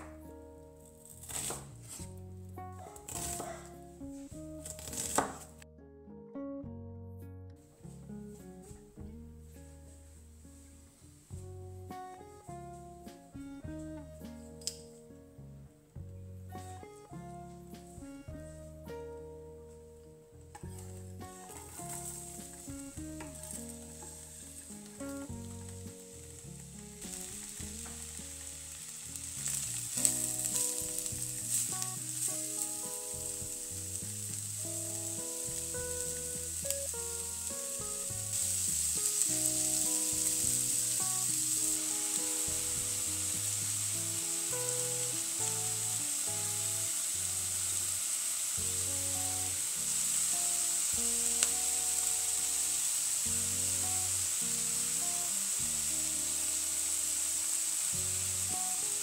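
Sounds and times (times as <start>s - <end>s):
soft melody of held notes: 2.0s - 59.0s
onions sizzling in oil: 20.6s - 59.0s.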